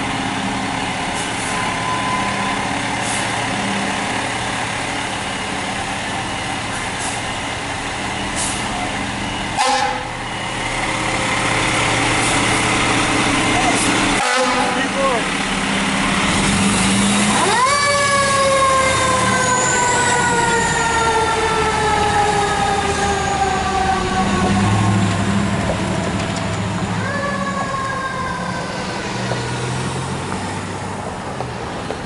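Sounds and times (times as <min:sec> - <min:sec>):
truck engine rumble: 0:00.0 - 0:32.0
mechanical siren wailing: 0:17.3 - 0:24.9.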